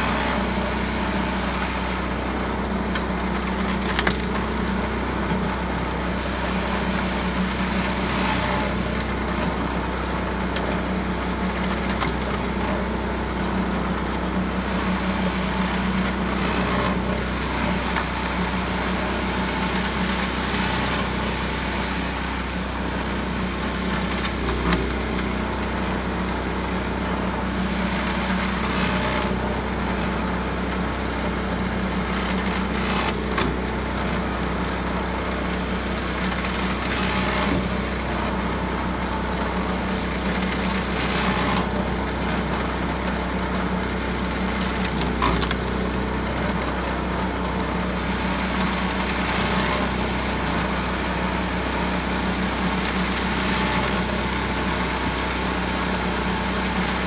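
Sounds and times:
small engine running: 0.0 - 57.0
wood cracking as split: 3.8 - 4.7, 11.8 - 12.8, 34.4 - 34.9.

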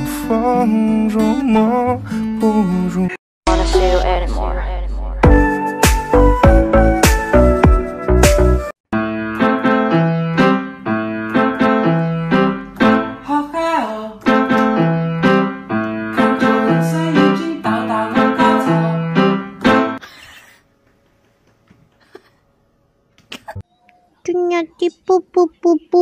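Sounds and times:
piano tune: 5.2 - 13.6, 14.2 - 20.0.

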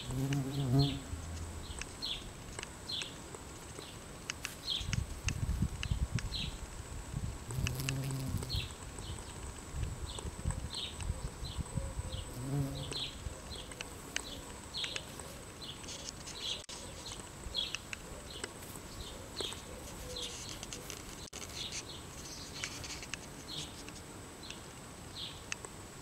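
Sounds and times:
bumblebee buzzing: 0.0 - 1.7, 7.5 - 8.7, 12.3 - 13.1.

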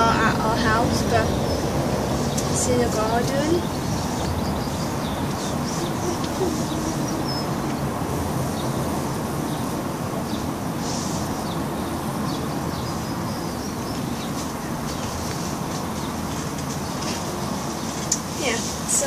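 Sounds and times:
rushing background noise: 0.0 - 19.0
high bird chirps: 3.6 - 7.9.

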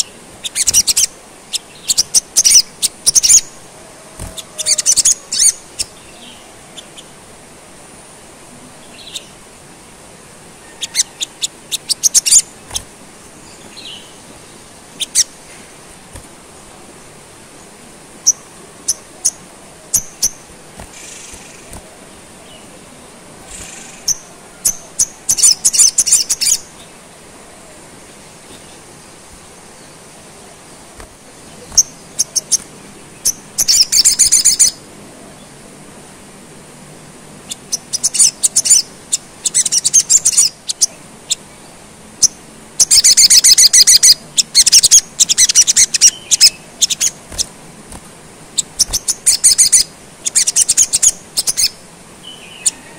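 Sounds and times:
bird chips and rattling trills: 0.0 - 3.6, 4.2 - 6.1, 10.8 - 14.2, 15.0 - 15.4, 18.2 - 22.6, 23.4 - 26.7, 31.0 - 34.8, 37.5 - 41.4, 42.2 - 51.8.

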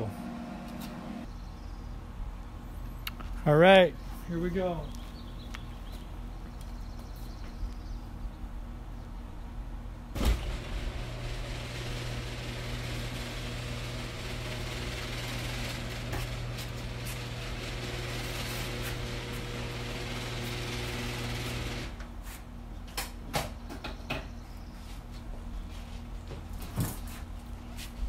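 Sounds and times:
garage door motor hum: 0.0 - 1.3, 10.0 - 22.2
garage door opener clunk: 10.1 - 22.0.

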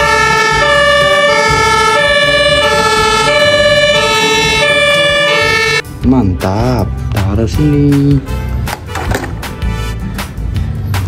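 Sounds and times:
two-tone fire engine siren: 0.0 - 5.8.

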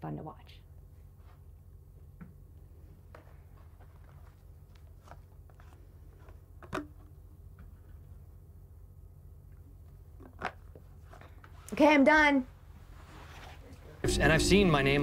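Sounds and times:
steady low hum: 14.0 - 15.0.

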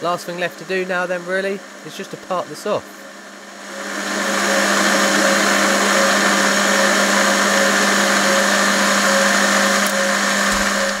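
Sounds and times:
lathe motor hum: 0.0 - 11.0
lathe tool cutting metal rod: 3.6 - 11.0.

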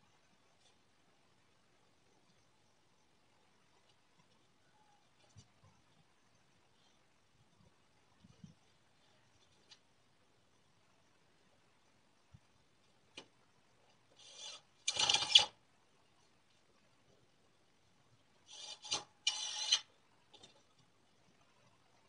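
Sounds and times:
pipe clamps rasping: 18.5 - 19.9.

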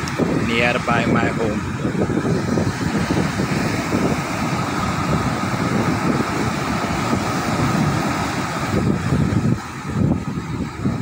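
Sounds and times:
ocean surf breaking: 0.0 - 11.0
wind buffeting microphone: 0.0 - 11.0.

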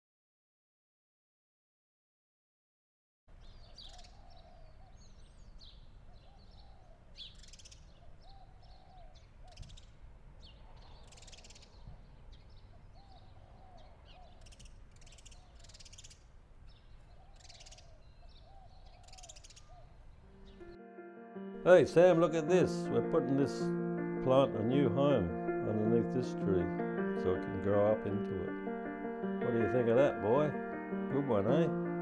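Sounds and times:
high bird chirps: 10.8 - 20.8
crow-like cawing calls: 17.2 - 20.7.

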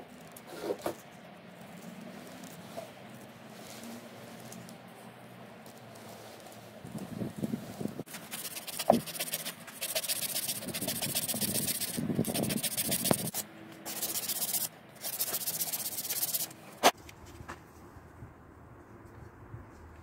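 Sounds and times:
sandpaper rubbing wood shaft: 7.6 - 16.5.

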